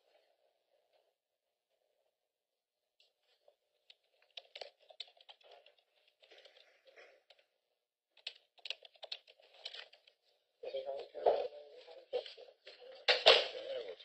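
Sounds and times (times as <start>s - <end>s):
paper rustling: 3.0s - 7.5s, 8.2s - 10.4s.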